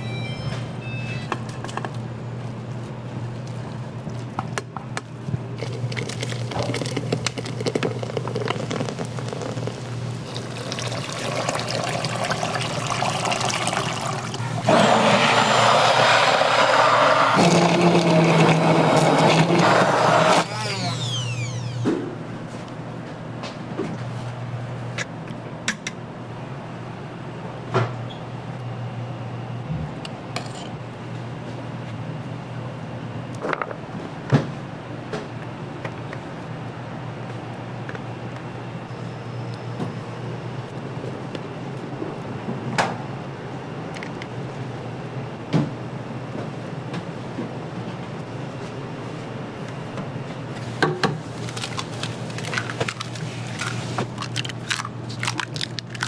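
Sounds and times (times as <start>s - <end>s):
water running from a tap: 9.3s - 14.4s.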